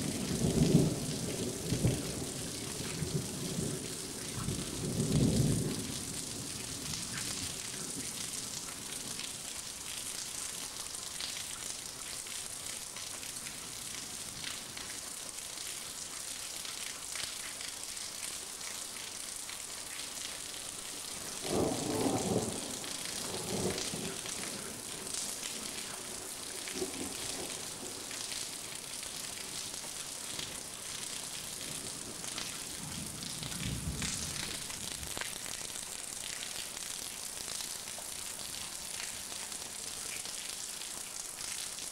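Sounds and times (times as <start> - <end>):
heavy rain hissing: 20.7 - 41.9.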